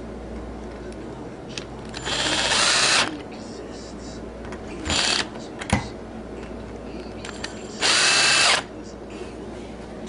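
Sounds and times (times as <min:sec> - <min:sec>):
cordless drill driving screw: 0:02.0 - 0:03.1, 0:04.9 - 0:05.3, 0:07.8 - 0:08.6.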